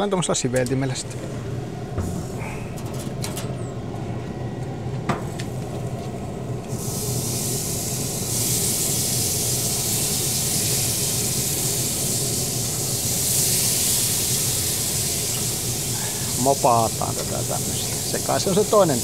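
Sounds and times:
steady low hum: 0.0s - 19.0s
sizzling hiss: 5.2s - 19.0s.

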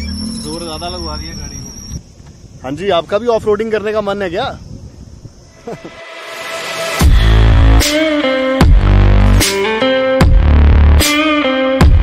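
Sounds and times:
sharp sweeping hits: 5.5s - 9.9s
electronic music with heavy bass: 5.6s - 12.0s.

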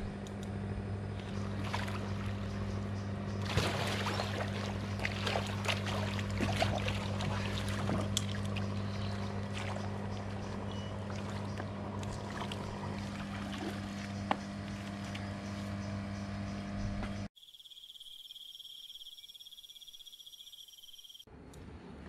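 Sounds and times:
low mechanical hum: 0.0s - 17.3s, 21.2s - 22.0s
water noise: 1.1s - 16.0s
insects chirring: 14.1s - 21.3s.

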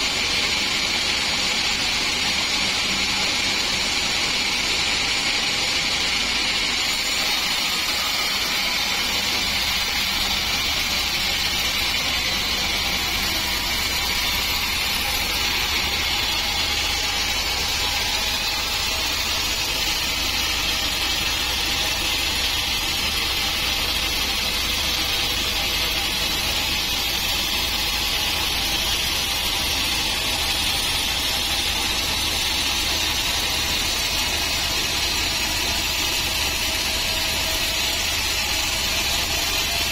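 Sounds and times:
band saw cutting log: 0.0s - 39.9s.

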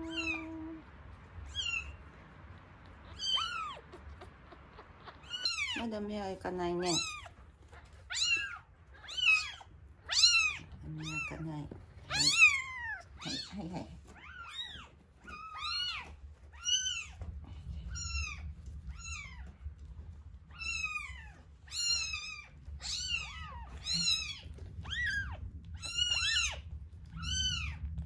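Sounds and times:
kitten mewing: 0.0s - 0.9s, 2.8s - 5.9s, 6.9s - 16.0s.

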